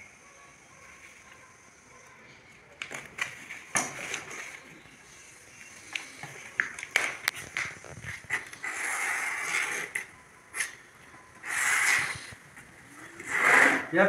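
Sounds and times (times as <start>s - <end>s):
wood scraping on plywood: 7.9s - 10.0s, 13.2s - 13.9s.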